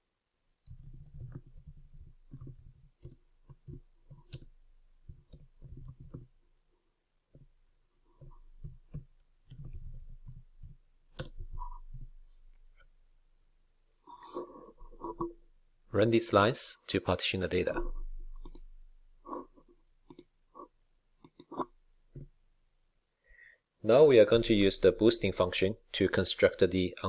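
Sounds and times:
typing on computer keyboard: 0:00.6 - 0:06.3, 0:18.4 - 0:18.7, 0:20.0 - 0:20.3, 0:21.2 - 0:22.3.

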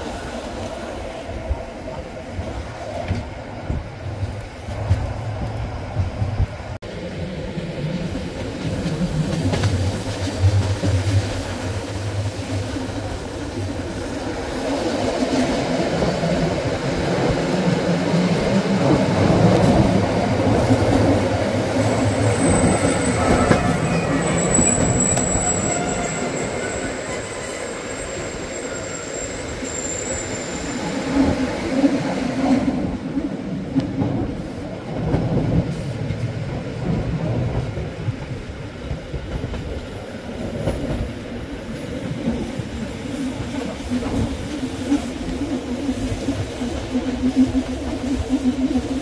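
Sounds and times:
train wheels rumbling on rails: 0:00.0 - 0:49.0
high-pitched wheel squeal: 0:22.2 - 0:31.1.

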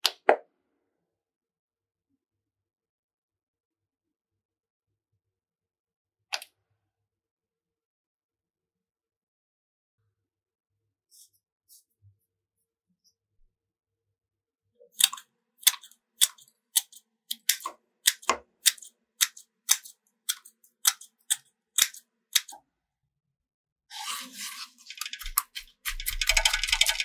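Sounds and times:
sharp snipping clicks: 0:15.0 - 0:22.6.

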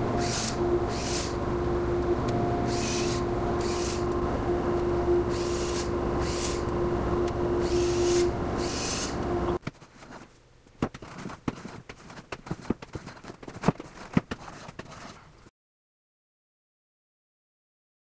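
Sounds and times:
hand plane shaving wood: 0:00.0 - 0:01.4, 0:02.6 - 0:04.2, 0:05.2 - 0:10.3, 0:11.0 - 0:15.2
power tool humming: 0:00.0 - 0:09.6.

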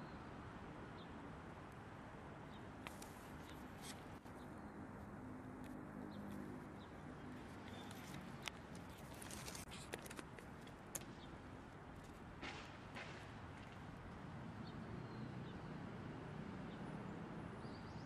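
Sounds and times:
soft clicks and rustles: 0:02.8 - 0:04.4, 0:07.5 - 0:11.2.

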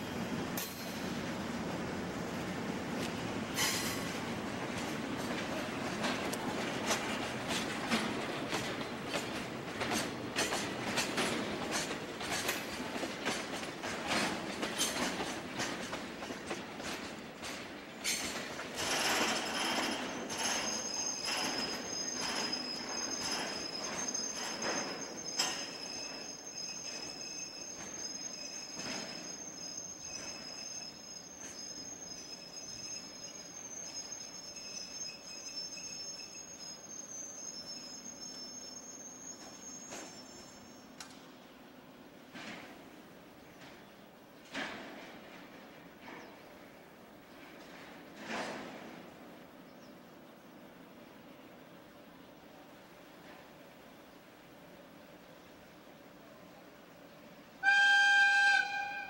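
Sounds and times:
train wheels clicking over rail joints: 0:00.2 - 0:01.4, 0:02.3 - 0:36.8, 0:39.3 - 0:41.4, 0:42.0 - 0:49.9
crickets trilling: 0:19.4 - 0:40.8.

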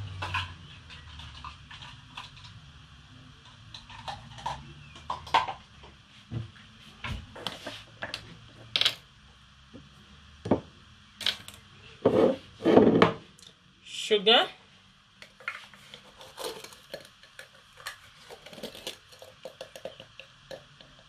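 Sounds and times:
kitchen items clicking and knocking: 0:15.2 - 0:21.0.

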